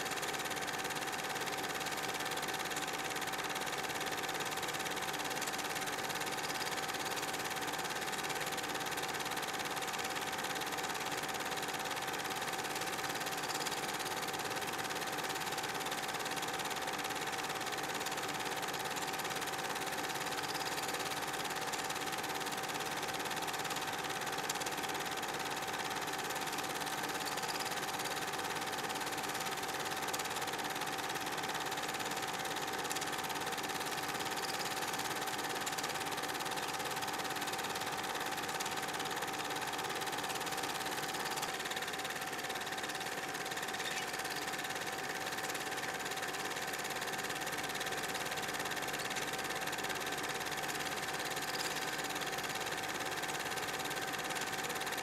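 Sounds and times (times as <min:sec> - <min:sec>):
film projector whirring: 0:00.0 - 0:55.0.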